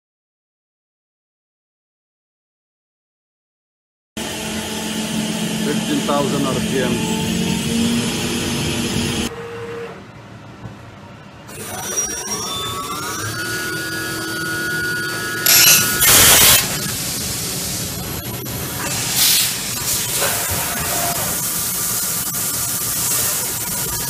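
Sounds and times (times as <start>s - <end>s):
spindle rising whine: 4.2s - 9.3s, 11.4s - 18.9s
low machine noise: 4.2s - 24.0s
bursts of hiss: 18.8s - 23.9s.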